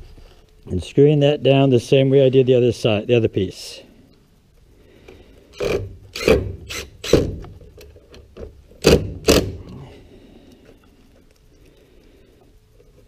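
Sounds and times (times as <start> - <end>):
cordless driver driving screws: 5.6 - 7.6, 8.8 - 9.6.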